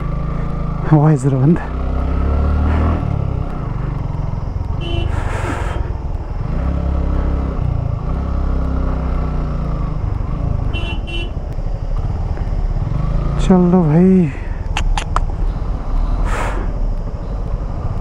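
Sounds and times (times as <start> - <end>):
motorcycle engine revving: 0.0 - 16.5
short horn beeps: 4.8 - 5.2.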